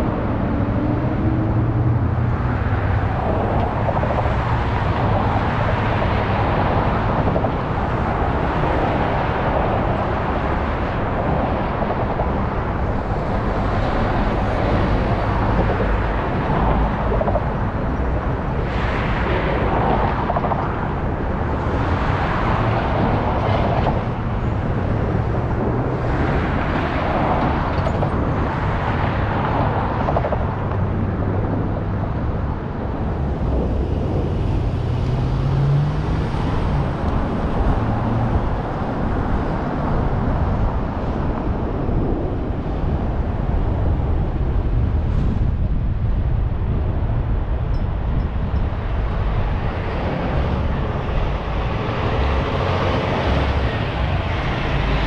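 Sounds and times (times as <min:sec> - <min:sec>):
bus passing close by: 0:00.0 - 0:55.0
vehicles passing: 0:00.0 - 0:55.0.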